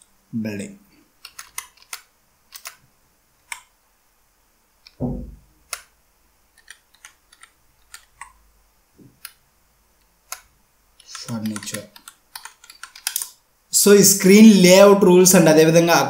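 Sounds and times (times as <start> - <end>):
keyboard key clicks: 1.2 - 2.8, 11.0 - 13.3
dull thump: 5.0 - 5.4.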